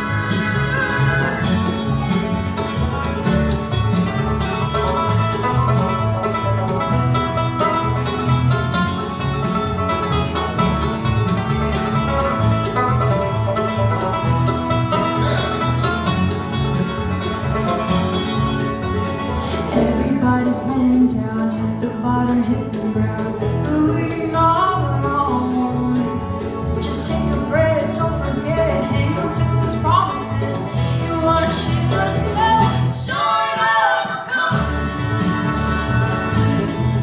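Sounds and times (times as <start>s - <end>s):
acoustic guitar: 0.0s - 37.0s
banjo: 0.0s - 37.0s
mandolin: 0.0s - 37.0s
upright bass: 0.0s - 37.0s.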